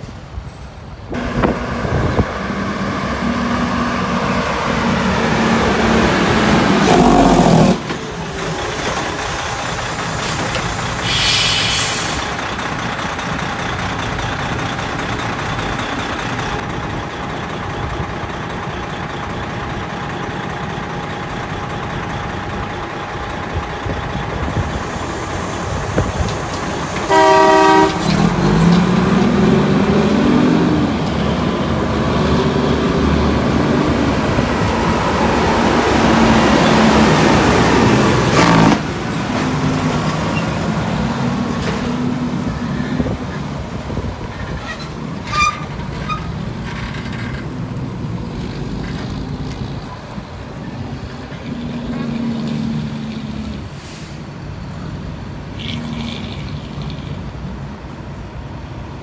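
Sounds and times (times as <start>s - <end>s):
truck diesel engine: 0.0s - 59.0s
truck horn blast: 6.8s - 7.8s, 27.0s - 28.4s
air hiss: 8.2s - 12.4s.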